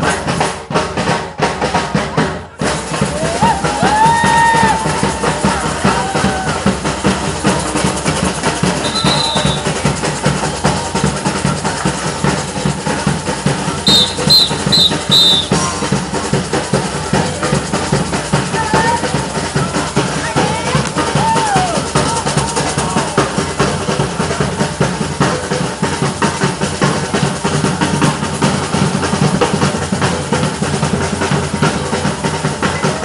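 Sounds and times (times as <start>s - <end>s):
samba percussion band drumming: 0.0s - 33.0s
high whistle blasts: 8.8s - 9.8s, 13.8s - 15.7s.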